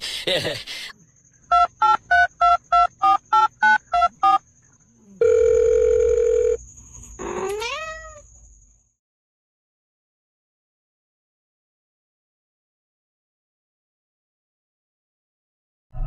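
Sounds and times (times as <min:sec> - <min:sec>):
phone keypad beeps: 0:01.5 - 0:04.4
steady telephone tone: 0:01.5 - 0:04.4, 0:05.2 - 0:06.6
cat meowing: 0:07.4 - 0:08.2.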